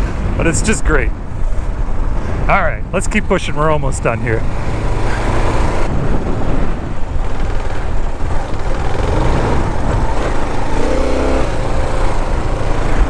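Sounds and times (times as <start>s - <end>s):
wind rumbling on microphone: 0.0s - 13.0s
motorcycle engine running: 4.2s - 13.0s.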